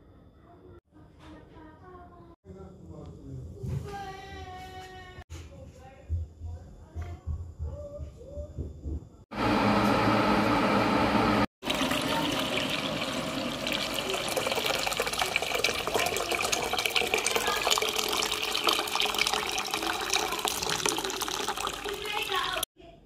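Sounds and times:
kettle boiling rumble: 9.4s - 22.6s
water pouring into metal pan: 11.6s - 22.7s.

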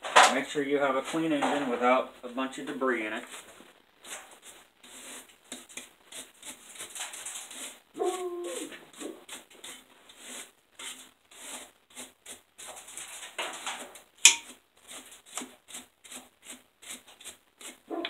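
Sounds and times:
hand tool scraping metal: 4.0s - 17.8s.

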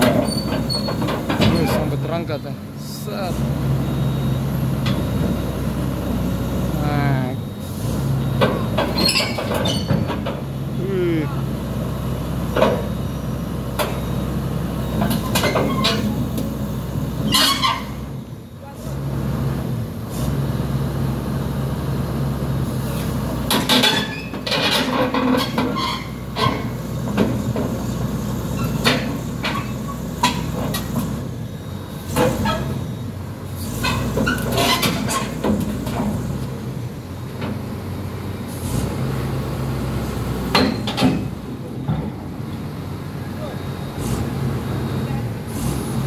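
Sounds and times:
steel tracks clanking on metal: 0.0s - 3.4s, 8.2s - 10.6s, 14.9s - 16.5s, 17.2s - 18.9s, 22.9s - 31.2s, 32.0s - 37.7s, 40.4s - 42.6s
diesel engine running: 0.0s - 46.0s.

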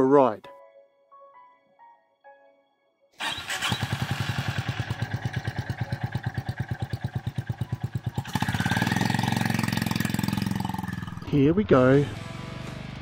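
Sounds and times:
motorcycle engine idling: 3.4s - 13.0s.

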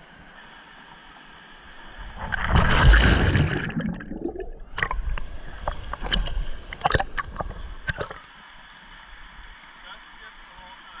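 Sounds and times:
water splashing against camera: 2.2s - 8.3s.

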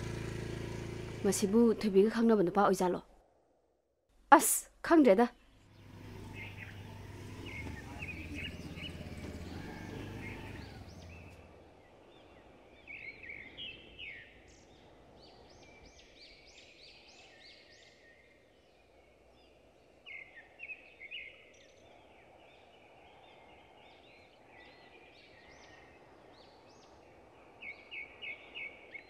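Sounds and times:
scooter engine at low revs: 0.0s - 2.2s, 5.6s - 11.6s
birds chirping: 5.3s - 18.4s.

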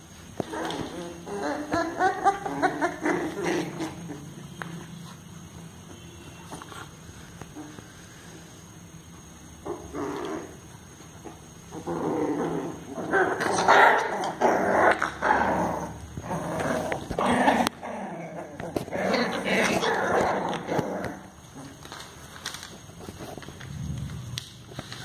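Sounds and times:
puppies growling: 0.4s - 4.8s, 9.6s - 10.7s, 11.7s - 21.8s.

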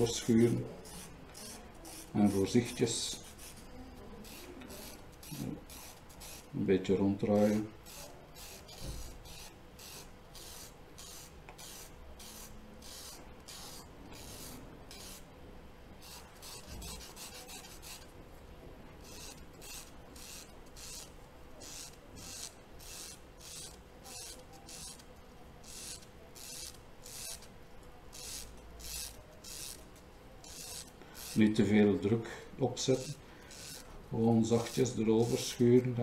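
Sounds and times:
charcoal scraping on sandpaper: 7.4s - 15.2s, 16.0s - 18.1s.

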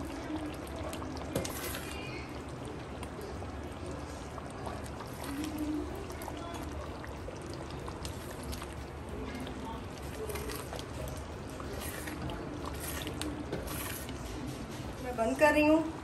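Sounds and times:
spatula stirring thick sauce: 3.4s - 14.7s.

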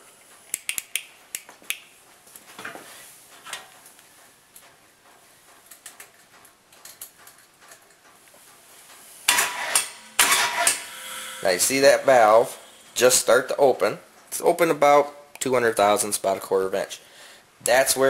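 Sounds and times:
loud burst of noise: 9.2s - 13.7s.

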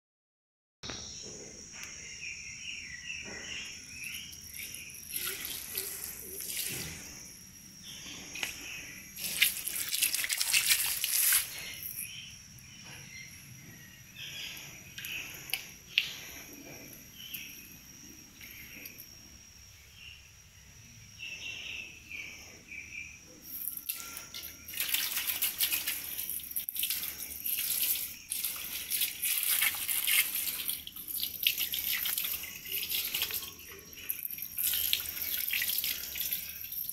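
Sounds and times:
high insect trill: 0.9s - 36.9s
hose water splashing on floor: 4.5s - 7.2s, 9.2s - 12.1s, 23.6s - 36.9s.

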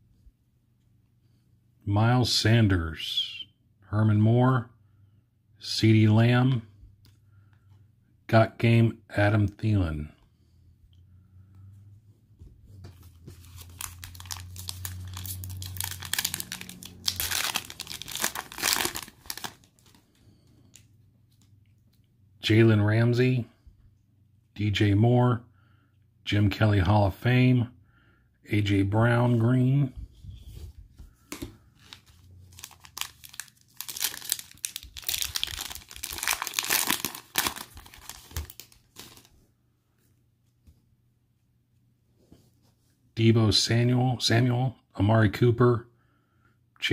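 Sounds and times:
foil wrapper crinkling and tearing: 13.4s - 20.0s, 31.8s - 39.3s.

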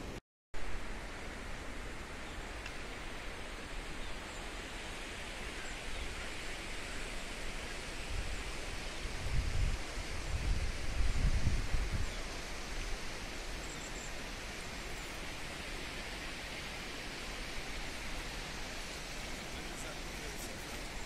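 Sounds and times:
outdoor rushing hiss: 0.6s - 21.0s
wind buffeting microphone: 8.0s - 21.0s.

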